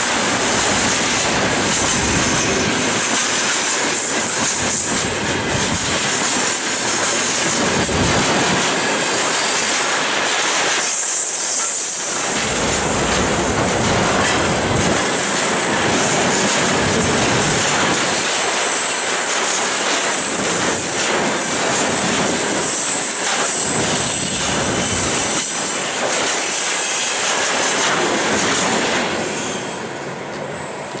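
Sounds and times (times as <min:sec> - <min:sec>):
train wheels clattering over joints: 0:00.0 - 0:29.6.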